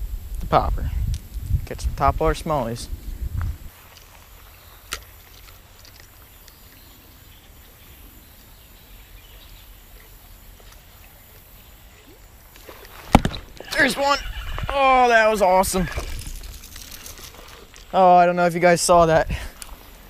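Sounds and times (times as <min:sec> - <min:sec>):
steady low rumble: 0:00.0 - 0:03.7.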